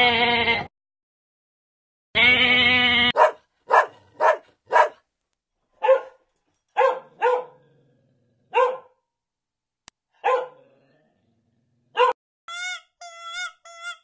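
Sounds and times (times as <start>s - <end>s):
puppy barking: 3.1s - 5.0s, 5.8s - 6.2s, 6.8s - 7.6s, 8.5s - 9.0s, 10.2s - 10.6s, 12.0s - 12.2s.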